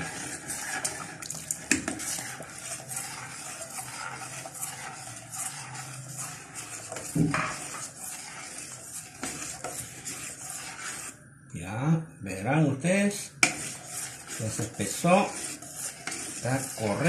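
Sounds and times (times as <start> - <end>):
milk pouring: 0.0 - 11.1
spoon stirring porridge in pot: 0.0 - 11.2, 13.0 - 17.0.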